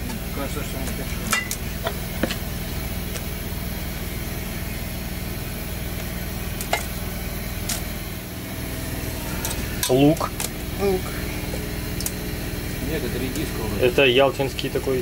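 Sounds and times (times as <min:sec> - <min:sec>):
steady low mechanical hum: 0:00.0 - 0:15.0.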